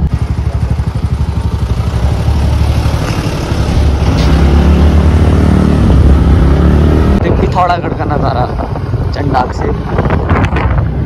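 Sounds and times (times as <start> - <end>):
scooter engine running: 0.0 - 11.0
wind rumble on microphone: 5.6 - 11.0.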